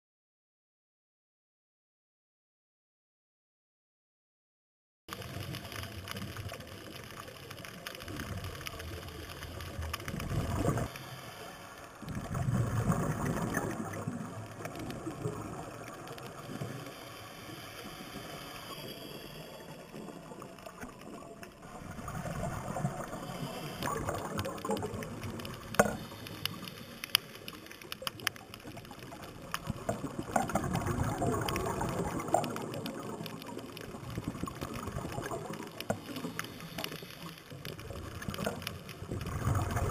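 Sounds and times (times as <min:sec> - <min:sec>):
bubbles gurgling: 0:08.0 - 0:10.9, 0:12.0 - 0:16.8, 0:19.6 - 0:26.9, 0:27.5 - 0:39.9
underwater hiss: 0:08.8 - 0:39.9.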